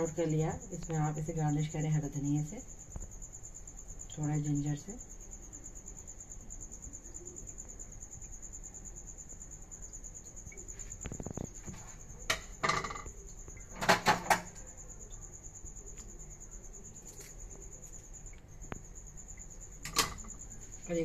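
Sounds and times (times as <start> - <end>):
dishes clinking: 12.3 - 13.1.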